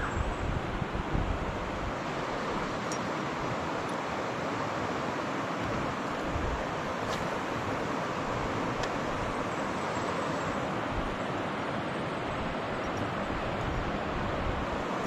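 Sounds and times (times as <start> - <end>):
wind buffeting microphone: 0.0 - 2.7
river water rushing: 0.0 - 15.0.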